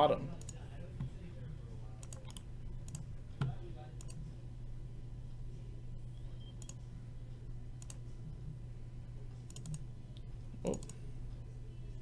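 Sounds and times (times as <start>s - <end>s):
low hum: 0.0s - 12.0s
mouse and keyboard clicks: 9.5s - 9.8s.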